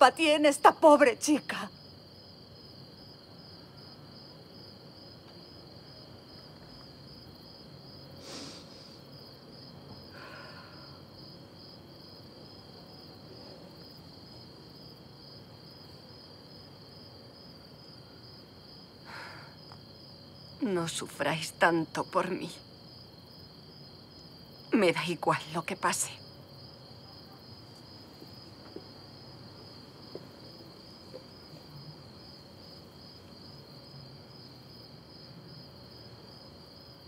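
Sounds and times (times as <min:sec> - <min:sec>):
crickets chirring: 0:00.0 - 0:37.0.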